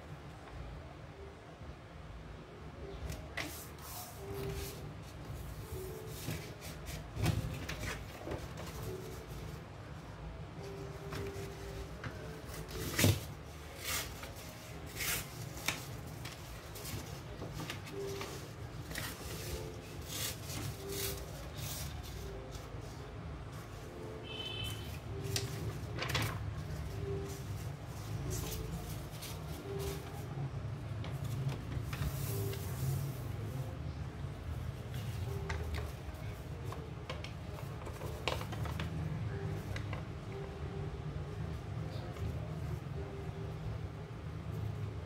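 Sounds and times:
paper rustling and crinkling: 3.4 - 9.5, 10.6 - 23.0, 24.9 - 30.2, 31.1 - 33.6, 34.9 - 40.0.

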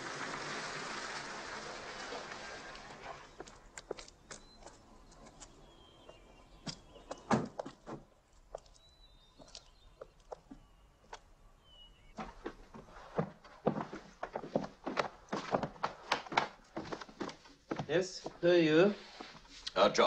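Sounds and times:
bird chirps: 3.2 - 7.8, 8.5 - 12.2
footsteps: 12.2 - 19.7.

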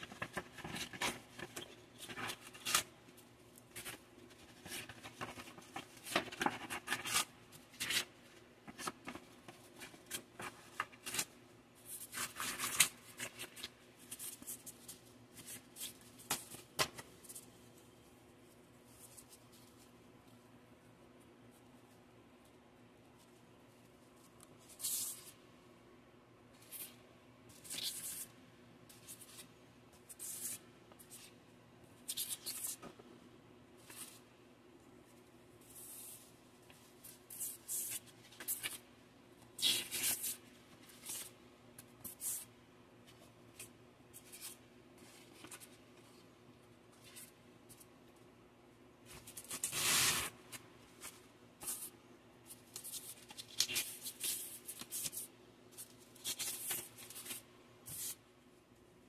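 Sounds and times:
sandpaper sheets rustling: 49.6 - 50.4.

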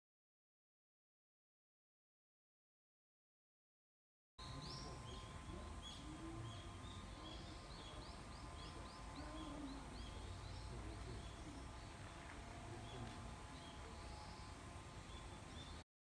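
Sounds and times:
birds chirping: 4.4 - 15.8.

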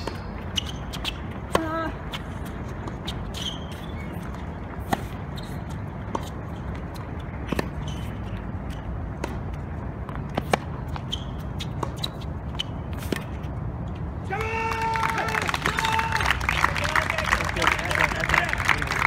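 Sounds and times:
shoe squeaks: 0.0 - 9.0, 10.2 - 13.9
racket hitting tennis ball: 0.0 - 13.5.

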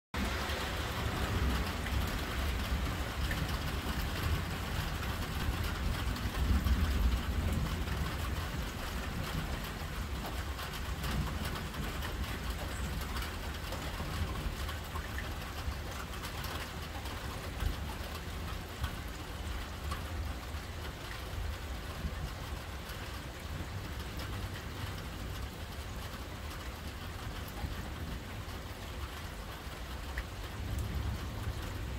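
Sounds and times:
thunder rumble: 0.2 - 14.9
steady rain falling: 0.2 - 31.9.

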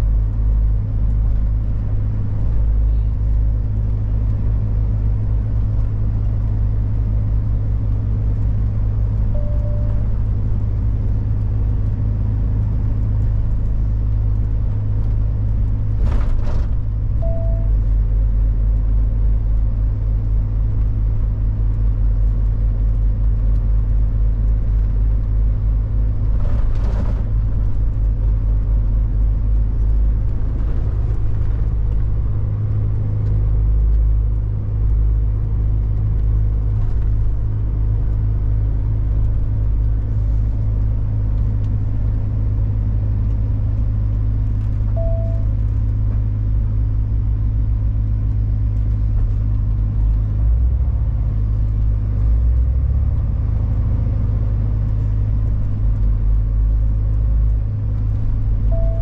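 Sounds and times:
truck engine droning: 0.0 - 59.0
brief beep: 9.4 - 10.1, 17.2 - 17.8, 45.0 - 45.5, 58.7 - 59.0.

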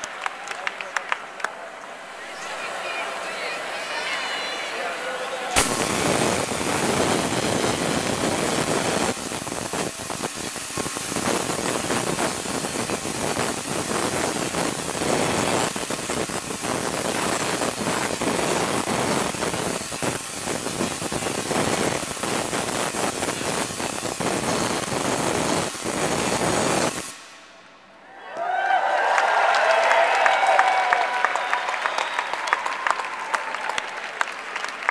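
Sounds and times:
tesla coil crackling: 5.6 - 28.0.

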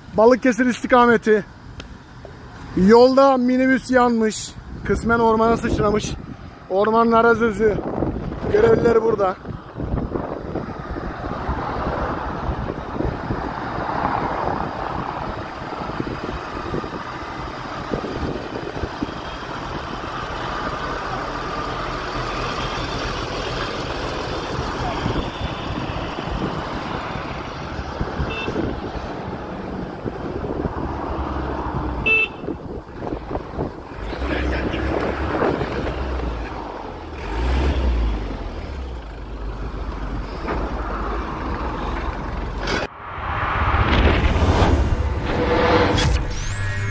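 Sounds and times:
vehicle passing with low rumble: 4.6 - 46.9
truck engine idling: 15.2 - 28.4.

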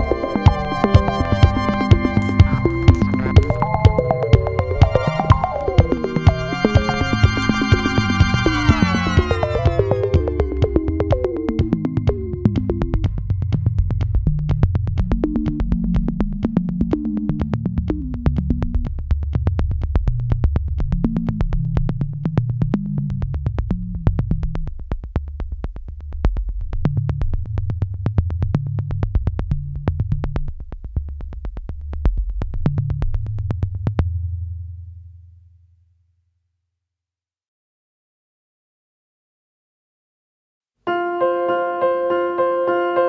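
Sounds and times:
synthesizer bass line: 0.0 - 18.9
clicking electronic beat: 0.0 - 24.4.

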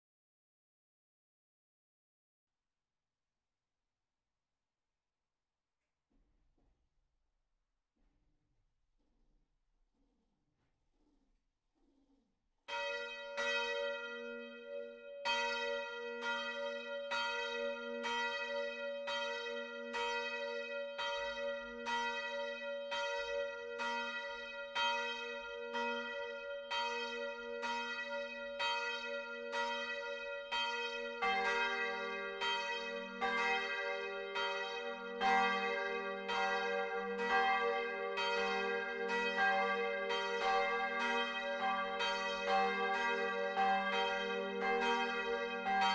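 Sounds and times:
church bells ringing: 12.7 - 45.9.

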